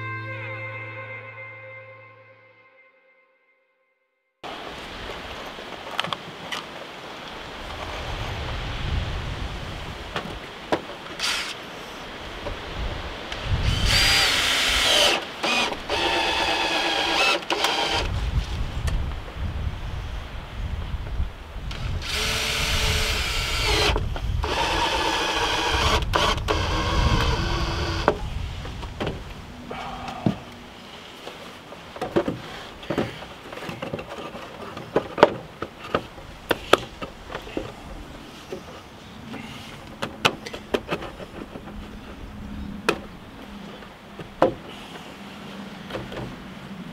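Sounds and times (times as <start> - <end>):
cordless drill whining: 11.2 - 11.6, 13.6 - 18.1, 21.7 - 28.2
wooden knocks and clunks: 27.2 - 29.4, 30.1 - 30.5, 31.2 - 42.2, 44.2 - 44.8, 45.9 - 46.4.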